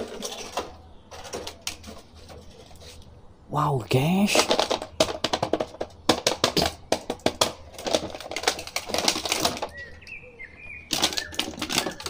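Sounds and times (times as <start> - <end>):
cardboard and plastic packaging crackling: 4.4 - 10.2, 10.9 - 12.0.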